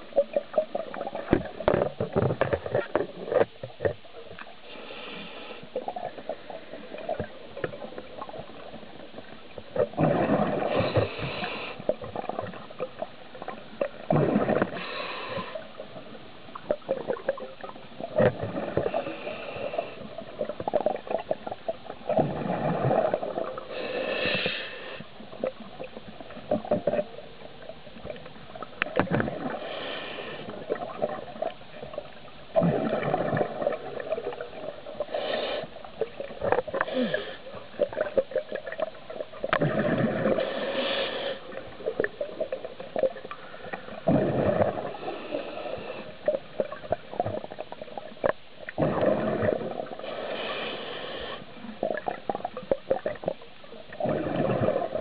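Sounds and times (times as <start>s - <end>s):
diver exhaling bubbles underwater: 9.8s - 12.7s, 13.8s - 15.6s, 16.8s - 19.2s, 20.5s - 23.9s, 32.6s - 35.0s, 36.0s - 41.0s, 41.8s - 47.7s, 48.7s - 50.2s, 51.8s - 55.0s.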